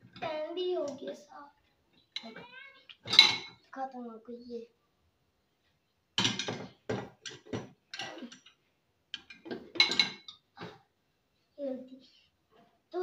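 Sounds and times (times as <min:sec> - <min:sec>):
pots clattering on wire rack: 0:03.0 - 0:03.6, 0:06.2 - 0:08.5, 0:09.2 - 0:10.8.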